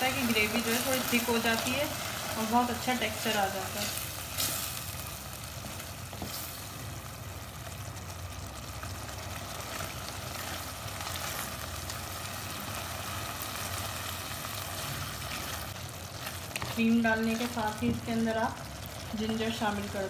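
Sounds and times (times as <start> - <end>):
gravy sizzling in a pot: 0.0 - 20.0
spatula stirring and scraping pot: 5.5 - 6.8, 14.7 - 17.6.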